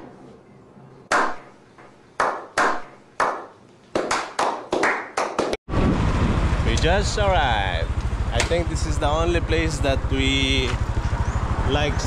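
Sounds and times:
hand clapping: 2.2 - 5.6
motorbike: 5.7 - 12.0
street traffic: 5.7 - 12.0.

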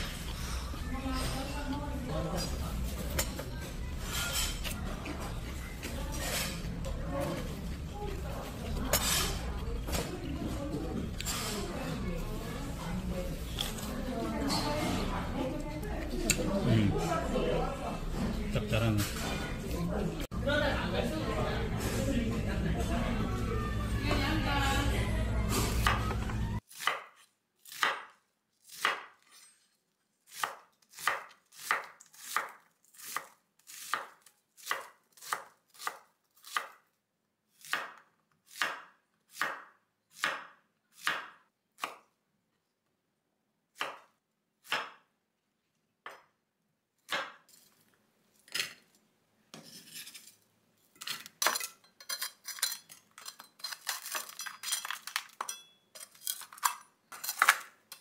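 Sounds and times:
knife scraping board: 49.5 - 50.4.

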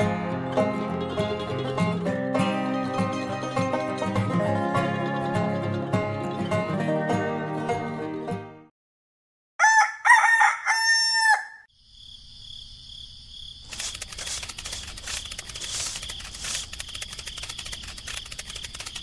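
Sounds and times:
rooster crowing: 9.6 - 11.7
fast rattling clatter: 13.7 - 19.0.

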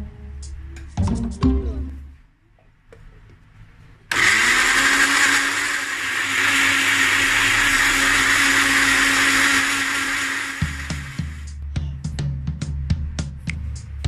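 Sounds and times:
electric blender motor running: 4.1 - 11.5.

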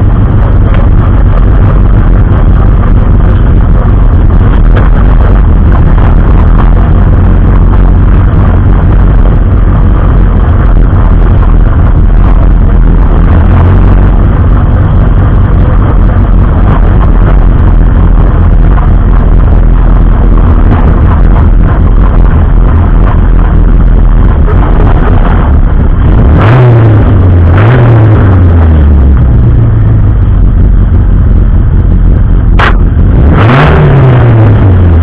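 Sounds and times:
race car engine running loud: 0.0 - 35.0.

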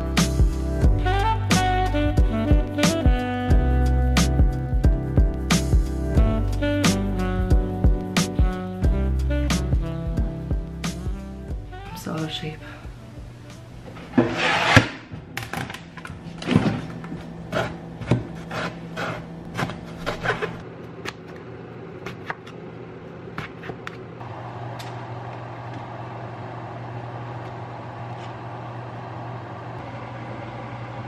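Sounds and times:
steady whirring hum: 11.6 - 31.0.

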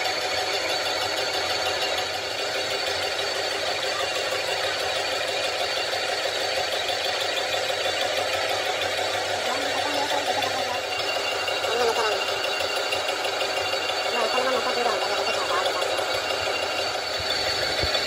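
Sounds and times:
high-pitched cutter whine: 0.0 - 18.0
lathe machining drone: 0.0 - 18.0.

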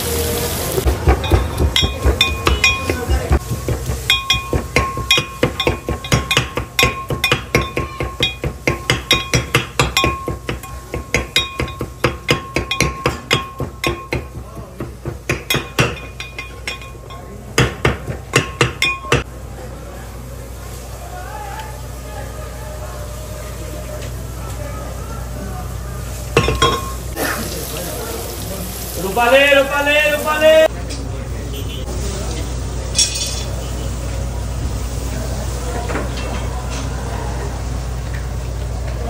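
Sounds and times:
metal utensil striking: 0.9 - 19.3, 26.4 - 27.1.

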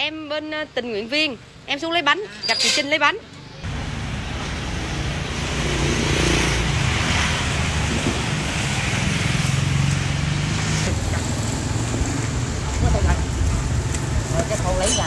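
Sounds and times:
road hum: 0.0 - 15.0
motorbikes and cars passing: 3.3 - 15.0.

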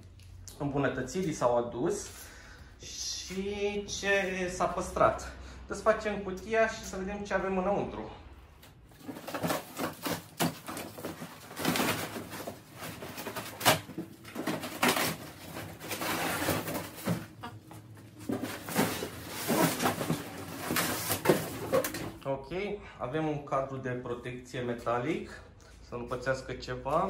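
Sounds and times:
cardboard scraping and rustling: 8.9 - 22.2.

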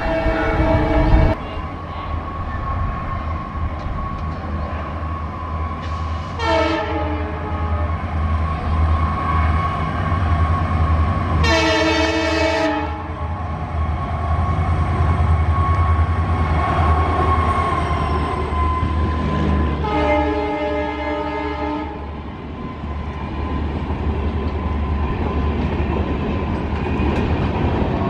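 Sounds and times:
locomotive air horn: 0.0 - 1.4, 5.9 - 8.0, 11.4 - 13.2, 19.8 - 22.1
train rumbling past: 0.0 - 28.0.

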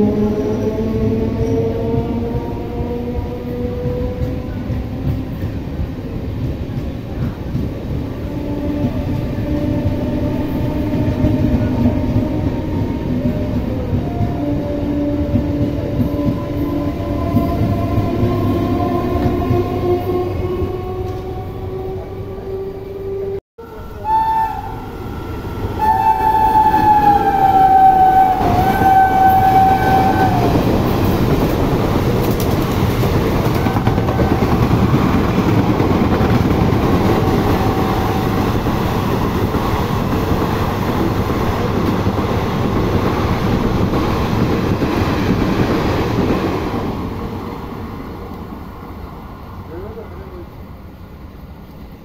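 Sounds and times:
train rumble and wheel clatter: 0.0 - 52.0
train horn: 8.2 - 30.7.

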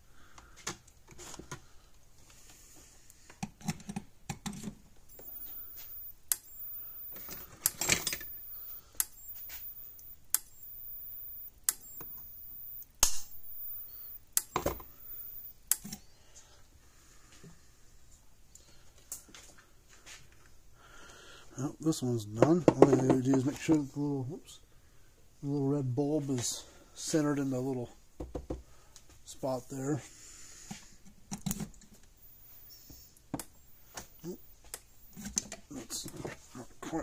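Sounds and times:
electric fence pulse snapping: 12.8 - 15.8.

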